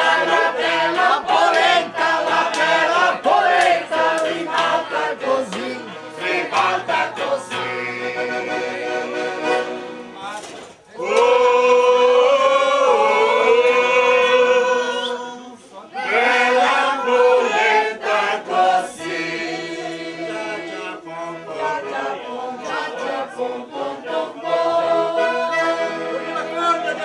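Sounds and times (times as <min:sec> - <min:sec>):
group of voices singing: 0:00.0 - 0:10.1, 0:10.9 - 0:27.0
acoustic guitar: 0:00.0 - 0:11.0
accordion: 0:00.0 - 0:27.0.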